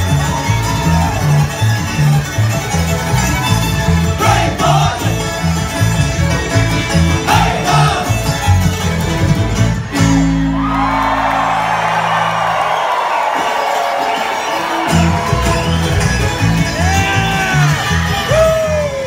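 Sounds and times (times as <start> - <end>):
crowd cheering: 0.0 - 6.0, 7.0 - 19.0
bluegrass string band playing: 0.0 - 12.4, 13.4 - 19.0
shouted vocals: 4.1 - 5.2, 7.2 - 8.2, 16.7 - 19.0.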